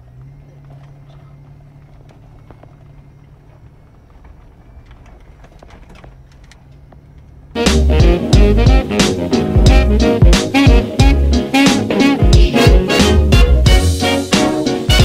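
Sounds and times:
car interior rattling: 0.0 - 7.6
low engine hum: 0.0 - 14.1
loud music: 7.6 - 15.0.

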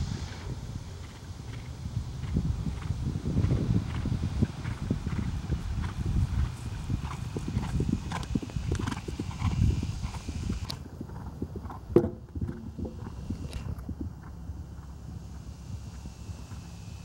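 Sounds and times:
horse hoofbeats on grass: 1.0 - 16.8
horse landing thump: 11.9 - 13.1.

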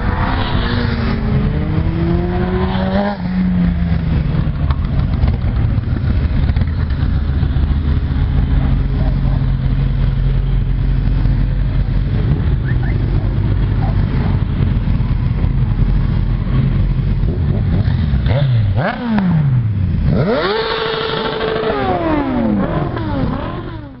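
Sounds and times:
motorcycle revving past: 0.0 - 9.3, 17.6 - 24.0
motorcycles riding past: 0.0 - 24.0.

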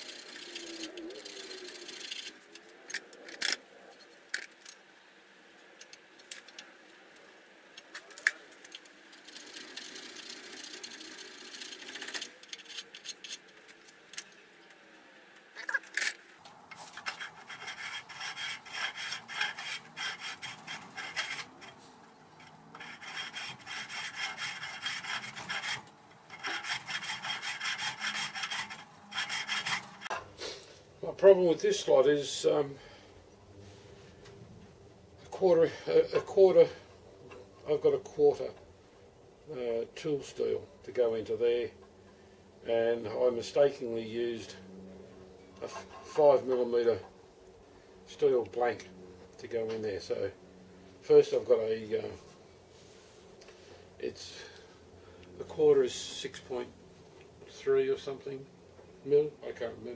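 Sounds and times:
knocks and scrapes: 15.6 - 30.3, 45.6 - 46.2
hand file rasping on metal: 17.0 - 21.8, 22.8 - 30.2.

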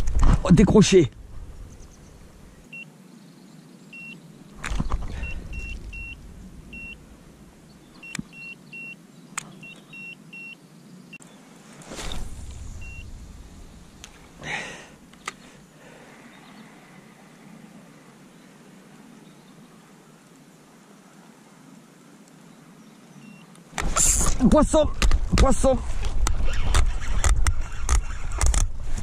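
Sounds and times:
low rumbling noise: 0.0 - 2.7, 4.5 - 8.2, 11.8 - 18.1
sharp clicks: 8.0 - 8.4, 15.1 - 15.5.

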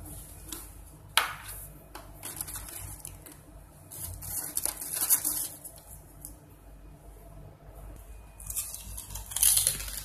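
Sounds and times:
chips rustling in plastic jar: 8.4 - 10.0.

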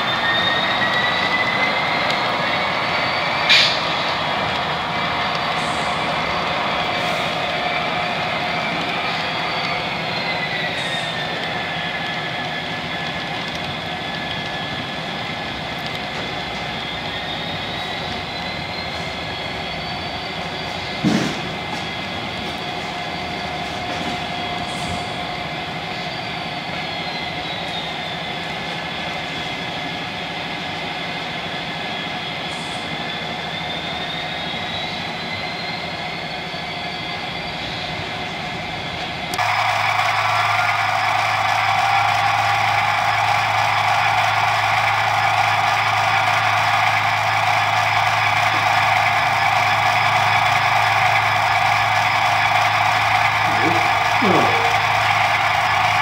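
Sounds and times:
locomotive hum from small speaker: 0.0 - 56.0
high whine: 47.6 - 56.0.

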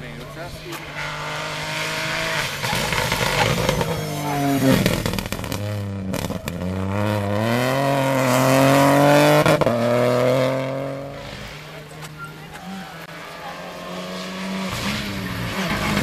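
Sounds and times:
rally car engine accelerating: 0.1 - 16.0
sharp exhaust pops: 2.4 - 7.4.

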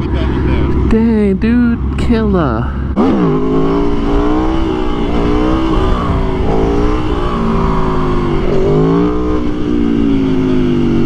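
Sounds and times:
motorcycle engine running under load: 2.8 - 11.0
wind rushing over microphone: 2.8 - 11.0.

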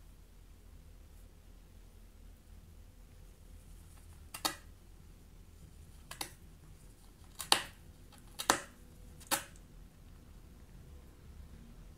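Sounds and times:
rabbit gnawing on cardboard: 3.0 - 10.4.

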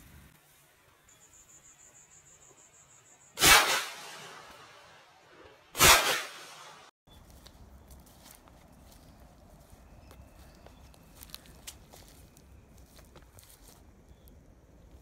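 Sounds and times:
shotgun shots with echo: 3.4 - 4.8, 5.8 - 6.9.

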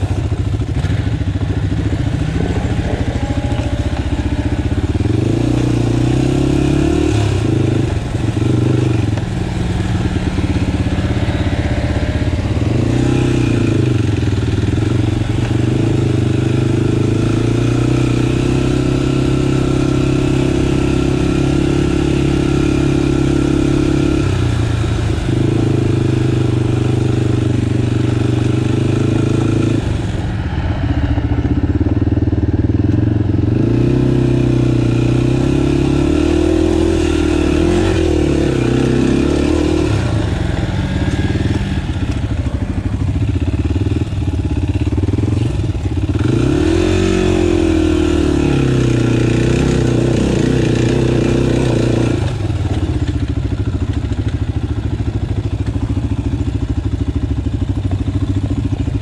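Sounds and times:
off-road vehicle engine running: 0.0 - 59.0.

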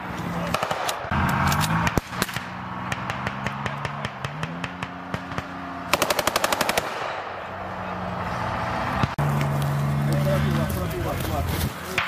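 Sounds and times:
armoured vehicle engine drone: 0.0 - 12.0
automatic gunfire: 5.9 - 7.2.

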